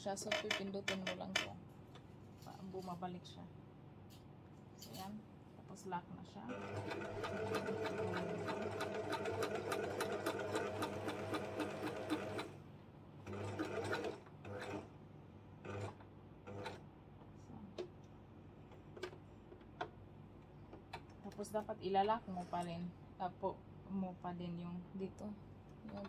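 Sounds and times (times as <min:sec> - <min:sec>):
electric sewing machine stitching: 0:06.5 - 0:12.6, 0:13.3 - 0:14.9, 0:15.6 - 0:16.8.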